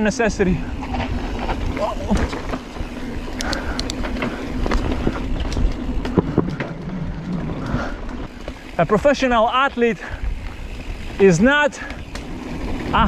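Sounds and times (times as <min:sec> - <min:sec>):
bike clicks and rattles: 0:00.0 - 0:13.0
tyre rumble: 0:00.8 - 0:08.8.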